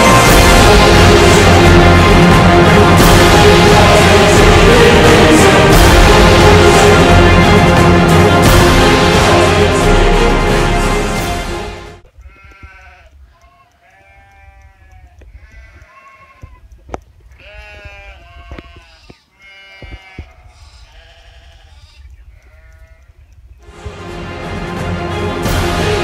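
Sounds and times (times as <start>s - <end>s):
goats bleating: 12.1s - 23.3s.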